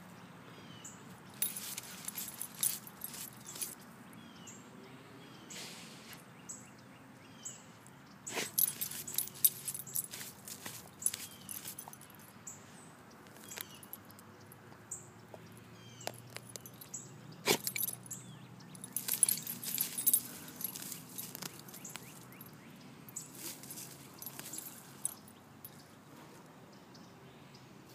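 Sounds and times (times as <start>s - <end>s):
collar tag jingling: 1.2s - 3.9s, 8.3s - 12.5s, 13.3s - 14.6s, 15.3s - 26.0s
dog scratching in soil: 1.4s - 3.8s, 8.3s - 11.9s, 18.9s - 22.2s.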